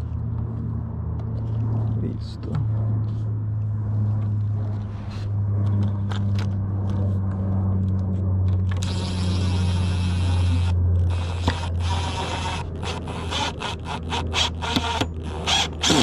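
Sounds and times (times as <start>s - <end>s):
steady low hum: 0.0s - 16.0s
impact driver whirring: 8.7s - 16.0s
boards and screw clicking: 11.4s - 16.0s.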